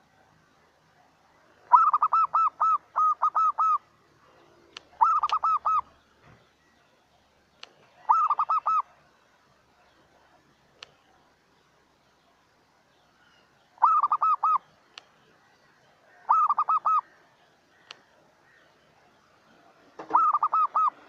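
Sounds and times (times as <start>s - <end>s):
dove cooing: 1.4s - 6.0s, 7.8s - 9.0s, 13.8s - 14.7s, 16.1s - 17.8s, 19.9s - 21.0s
sharp clicks: 7.6s - 7.8s, 10.8s - 11.0s, 14.9s - 15.1s, 17.8s - 18.0s.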